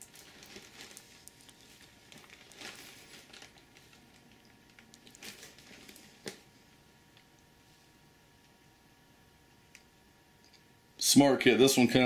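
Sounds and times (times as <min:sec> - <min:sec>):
plastic wrap crinkling: 0:00.0 - 0:07.3.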